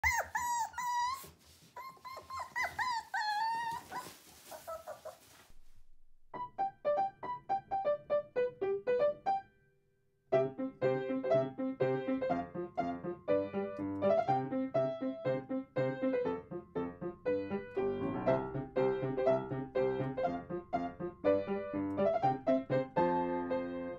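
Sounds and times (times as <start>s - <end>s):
puppies whimpering: 0.0s - 5.3s
piano melody: 6.3s - 23.9s.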